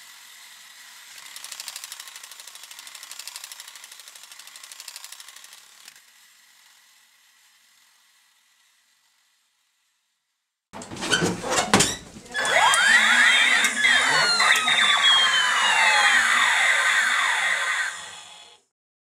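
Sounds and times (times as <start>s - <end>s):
electronic sweeping tones: 12.4s - 18.4s.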